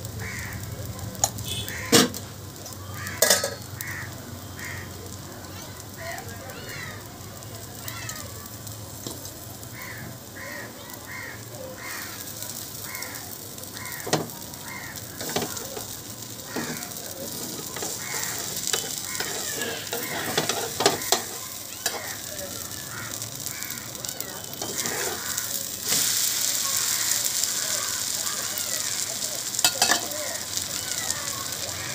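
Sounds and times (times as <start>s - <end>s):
food sizzling on hot iron pan: 0.0s - 31.9s
spatula tapping pan: 15.2s - 22.2s, 29.6s - 30.1s
metal spatula scraping: 16.6s - 22.2s, 24.5s - 26.3s.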